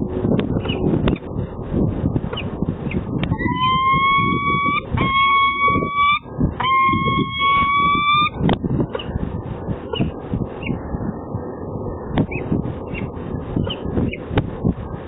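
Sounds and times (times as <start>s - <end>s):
low rumble: 0.0s - 15.0s
falcon wailing calls: 3.3s - 8.4s.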